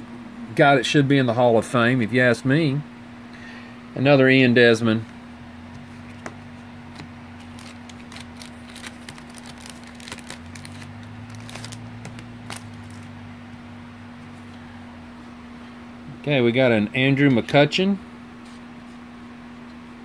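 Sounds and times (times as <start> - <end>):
steady low hum: 0.0 - 20.0
cards clicking and rustling: 5.8 - 13.1.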